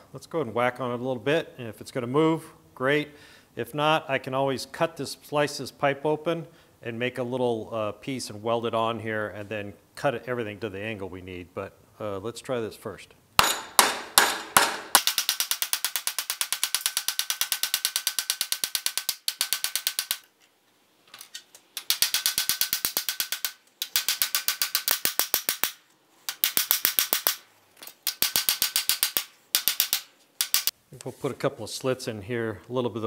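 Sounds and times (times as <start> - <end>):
hammer striking steel: 13.4 - 20.2.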